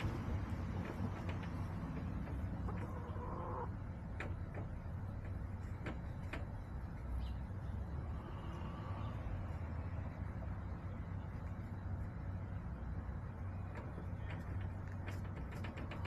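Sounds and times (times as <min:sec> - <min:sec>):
hens calling: 0:00.0 - 0:04.0
steady low rumble: 0:00.0 - 0:16.0.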